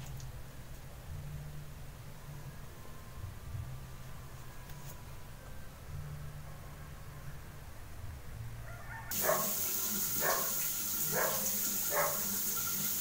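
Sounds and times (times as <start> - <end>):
dog barking: 8.7 - 9.6, 10.2 - 12.4
shower head spraying water: 9.1 - 13.0.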